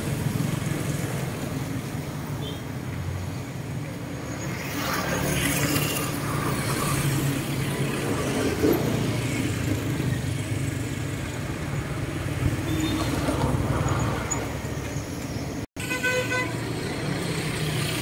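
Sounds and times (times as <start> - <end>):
traffic rumbling past: 0.0 - 18.0.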